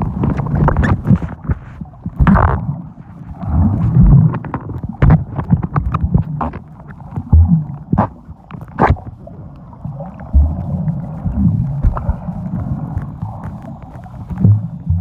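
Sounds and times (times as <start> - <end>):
low rumble of moving water: 0.0 - 15.0
dull knocks and thumps: 3.8 - 8.2.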